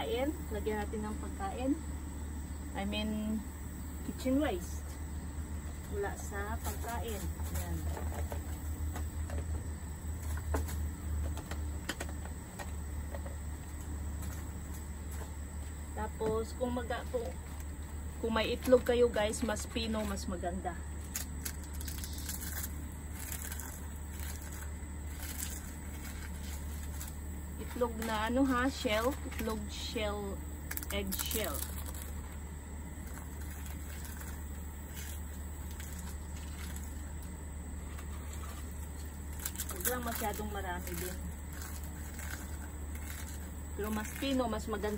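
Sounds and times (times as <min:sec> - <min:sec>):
eggshell crackling in plastic bucket: 0:17.0 - 0:44.9.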